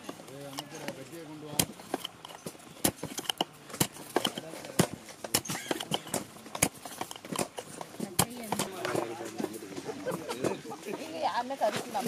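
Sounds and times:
wooden rod knocking in cardboard tubes: 0.0s - 9.6s.

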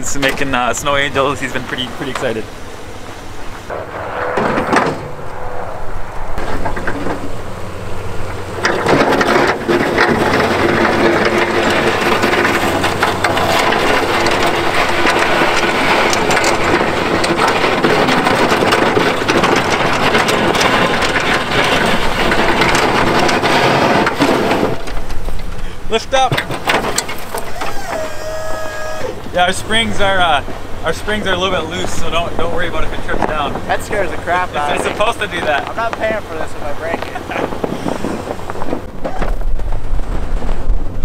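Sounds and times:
snowplow blade scraping snow: 0.0s - 41.0s
truck engine hum: 0.0s - 41.0s.

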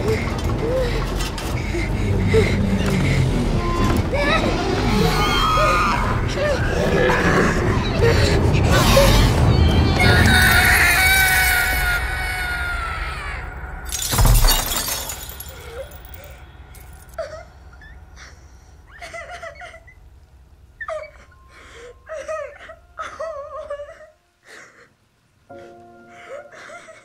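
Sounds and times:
boy sobbing: 0.0s - 6.8s, 20.8s - 27.0s
glass pieces tinkling: 13.9s - 17.2s
mirror shattering: 13.9s - 17.2s.

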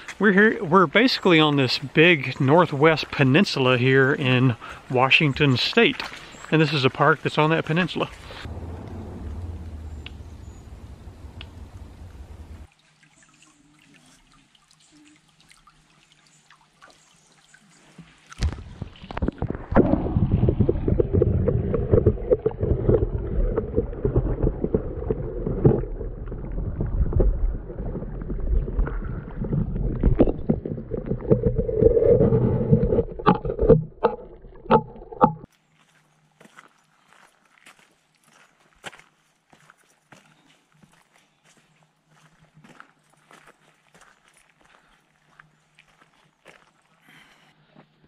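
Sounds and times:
underwater stream rushing and gurgling: 8.2s - 12.7s, 18.4s - 35.5s
small underwater knocks and clicks: 18.0s - 27.4s, 32.5s - 35.5s.

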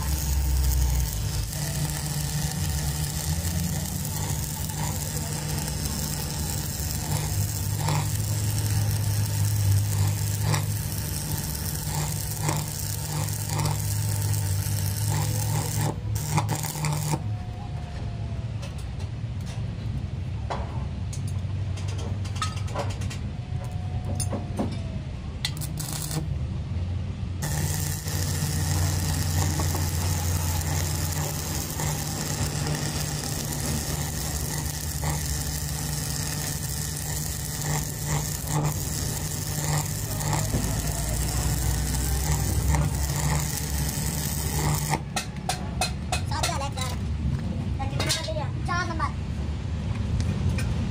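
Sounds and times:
welding arc crackling and sizzling: 0.0s - 17.3s, 25.4s - 26.4s, 27.4s - 47.5s
low electrical hum: 0.0s - 50.9s.

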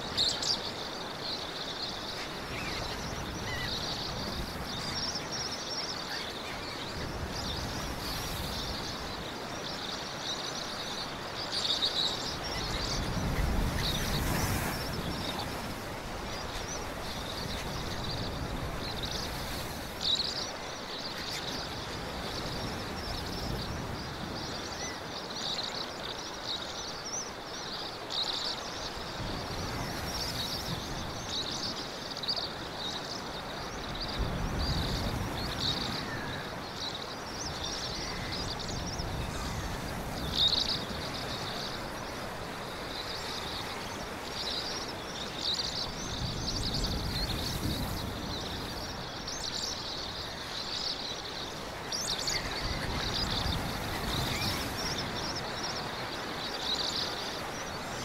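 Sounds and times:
high chirping chorus: 32.5s - 58.0s.

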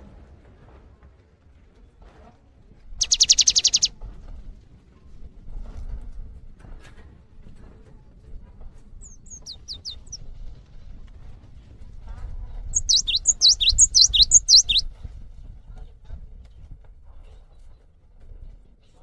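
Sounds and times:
bird calling falling notes: 3.0s - 3.9s, 9.0s - 10.2s, 12.8s - 14.8s.

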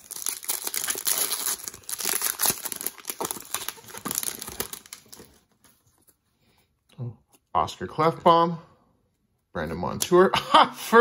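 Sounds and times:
plastic wrapper crinkling: 0.0s - 5.8s.

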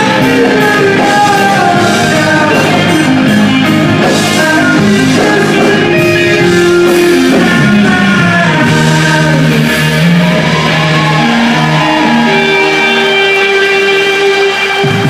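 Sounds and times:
bass: 0.0s - 15.0s
drums: 0.0s - 15.0s
electric guitars: 0.0s - 15.0s
person singing: 0.0s - 15.0s.

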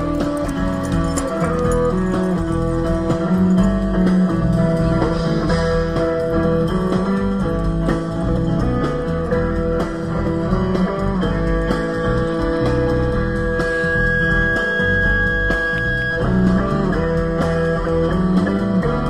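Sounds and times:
plucked guitar music: 0.0s - 19.0s.

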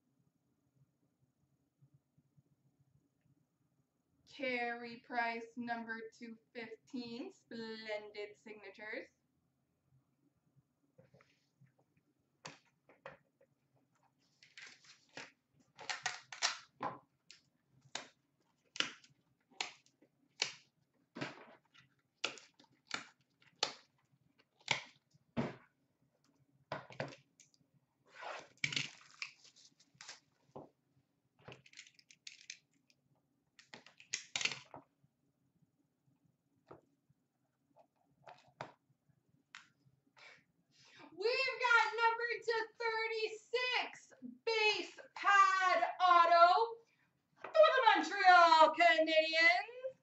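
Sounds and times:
trading cards and holders clicking: 31.5s - 32.8s.

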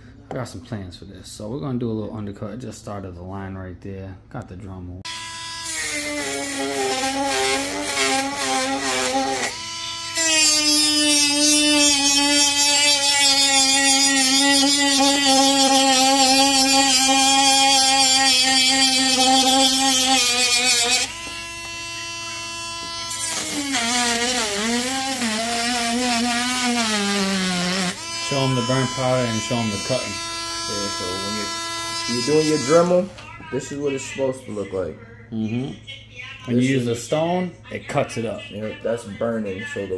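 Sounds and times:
rotary tool grinding plastic: 5.6s - 21.8s.

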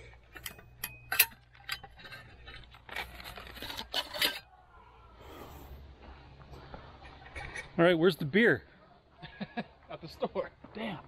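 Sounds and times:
hard objects clicking and clinking: 0.0s - 4.5s.

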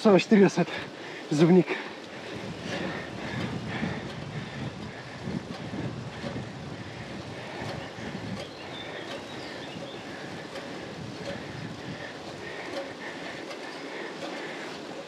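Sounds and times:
bicycle tyres rolling on tarmac: 0.0s - 15.0s
wind on microphone: 2.2s - 13.6s
faint clicks: 7.4s - 15.0s.

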